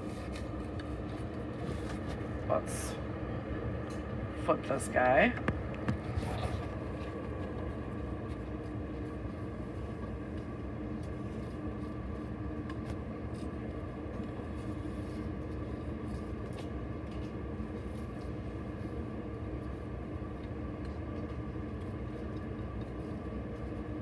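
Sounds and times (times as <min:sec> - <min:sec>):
steady mechanical hum: 0:00.0 - 0:24.0.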